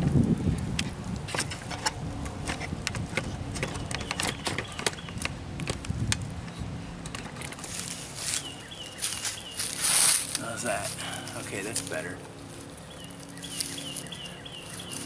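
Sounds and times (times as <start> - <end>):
twigs crackling and snapping: 0.0 - 15.0
footsteps on dry leaves: 7.6 - 15.0.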